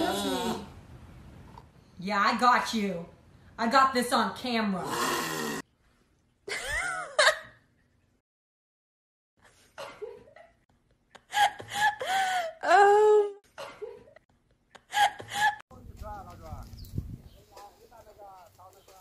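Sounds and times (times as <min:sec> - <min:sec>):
person giggling: 0:06.5 - 0:07.6.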